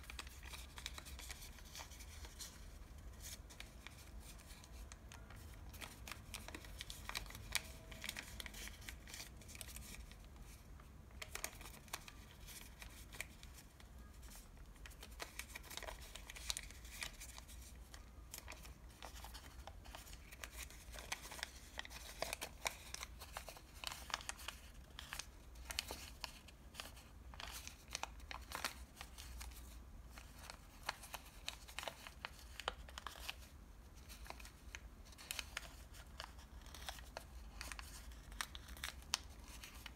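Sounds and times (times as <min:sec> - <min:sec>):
paper bag crinkling: 0:00.0 - 0:13.4
paper crackles and snaps: 0:00.0 - 0:39.9.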